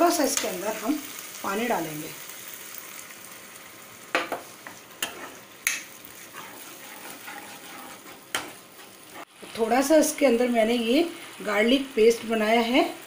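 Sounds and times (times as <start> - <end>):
vegetables sizzling in a wok: 0.0 - 13.0.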